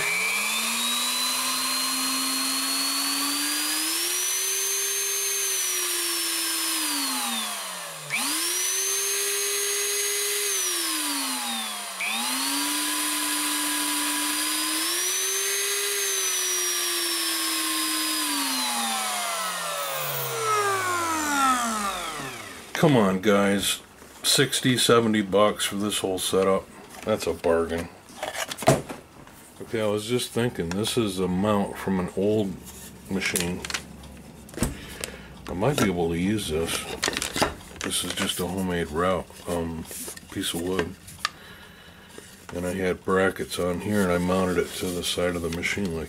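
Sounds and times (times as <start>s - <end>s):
router motor changing pitch: 0.0s - 22.9s.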